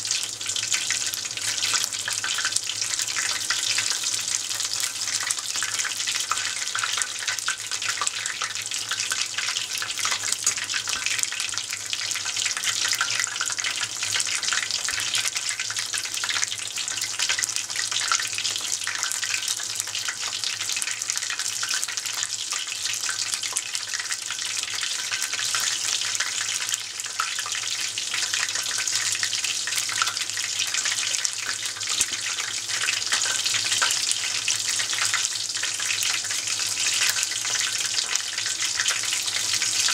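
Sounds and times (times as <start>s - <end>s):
oil sizzling and crackling: 0.0s - 39.9s.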